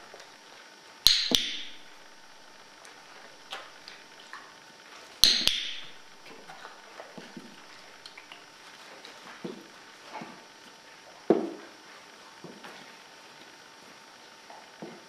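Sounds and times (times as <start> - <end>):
clicker double clicks: 1.1 - 2.4, 5.2 - 6.1.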